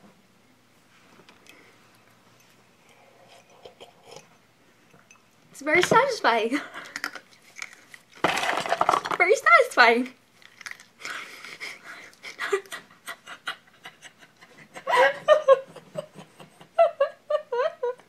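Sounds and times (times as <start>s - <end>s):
person laughing: 11.2s - 18.0s.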